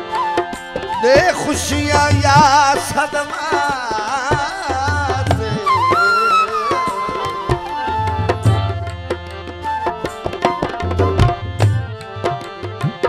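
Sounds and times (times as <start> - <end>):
tabla playing: 0.0 - 13.0
person singing: 1.0 - 8.9.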